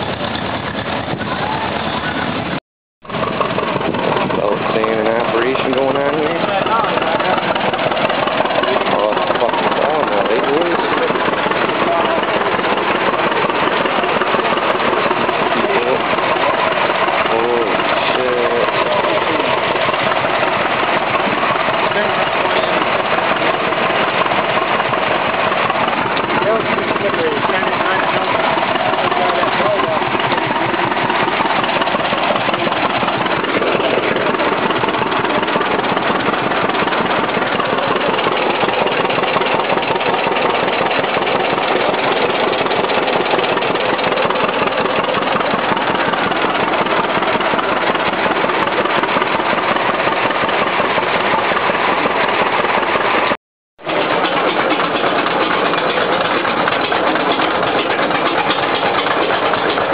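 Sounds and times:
tractor engine running under load: 0:00.0 - 0:59.9.

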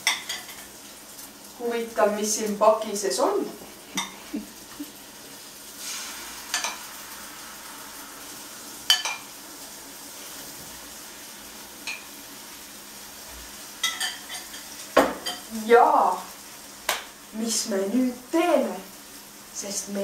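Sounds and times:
utensils clinking on dishes: 0:00.0 - 0:00.7, 0:03.9 - 0:04.2, 0:06.5 - 0:06.8, 0:08.9 - 0:09.3, 0:11.8 - 0:12.1, 0:13.8 - 0:15.5
bread sizzling in a pan: 0:00.0 - 0:20.0.

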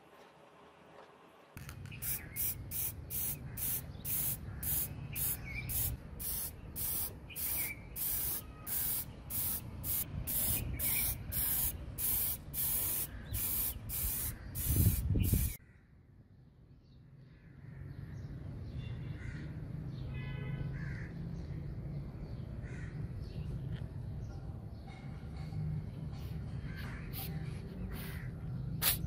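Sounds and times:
aerosol spray can hissing: 0:01.6 - 0:15.6.

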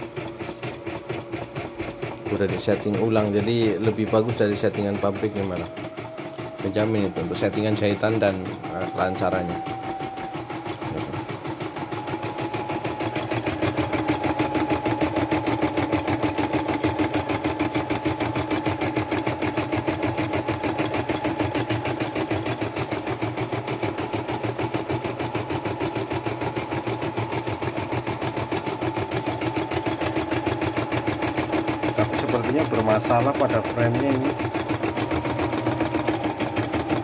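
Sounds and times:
embroidery machine needle strokes: 0:00.0 - 0:24.8, 0:27.6 - 0:37.0
motor hum: 0:00.0 - 0:37.0.

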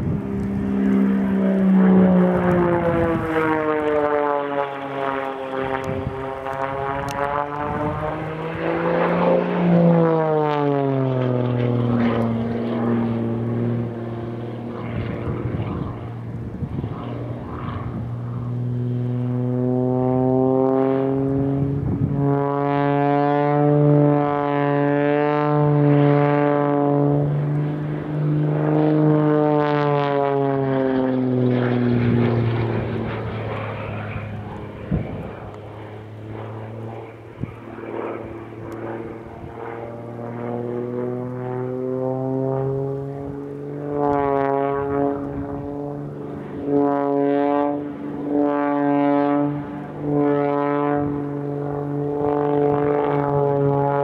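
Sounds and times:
airplane engine and propeller drone: 0:00.0 - 0:54.0.

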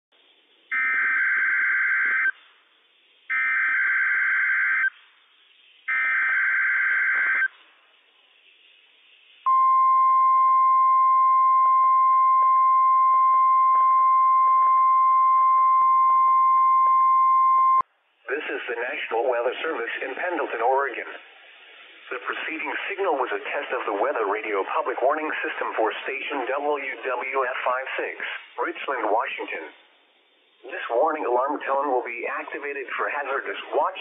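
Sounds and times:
steady warning alarm tone: 0:00.7 - 0:02.3, 0:03.3 - 0:04.9, 0:05.9 - 0:07.5.

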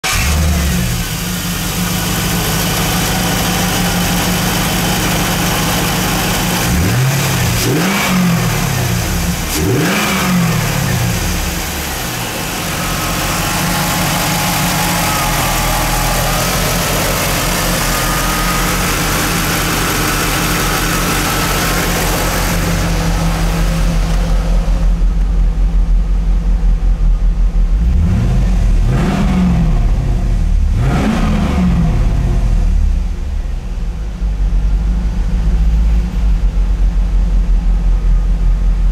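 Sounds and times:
car engine idling and revving: 0:00.0 - 0:38.9.

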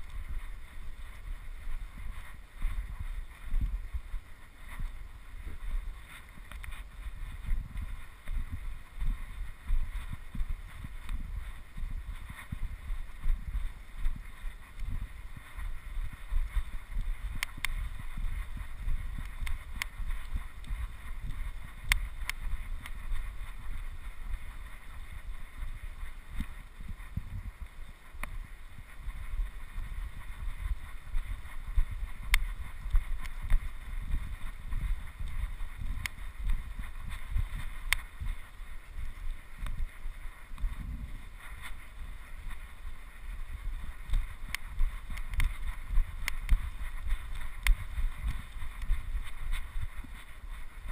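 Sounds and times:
faint steady hiss: 0:00.0 - 0:50.9
wind buffeting microphone: 0:00.0 - 0:50.9
sharp clicks: 0:44.1 - 0:45.6.

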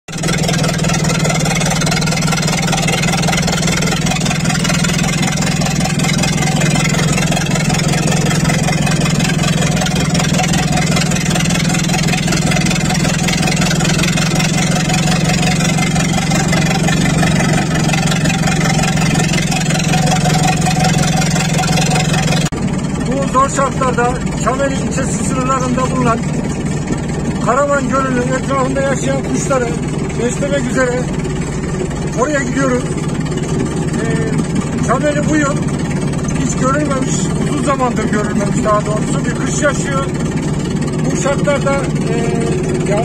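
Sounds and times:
tractor engine running: 0:00.0 - 0:43.0.

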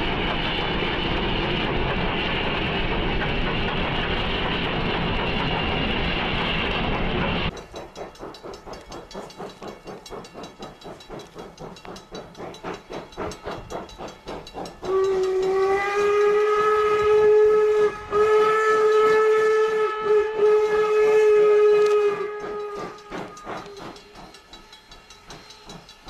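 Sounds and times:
steam locomotive chuffing: 0:00.0 - 0:26.0
steam whistle blast: 0:14.8 - 0:24.2.

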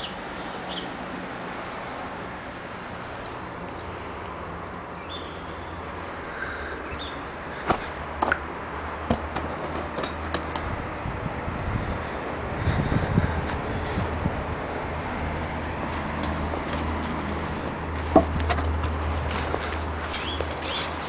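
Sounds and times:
outdoor background noise: 0:00.0 - 0:21.0
sharp knocks: 0:09.0 - 0:10.7, 0:18.1 - 0:19.0.

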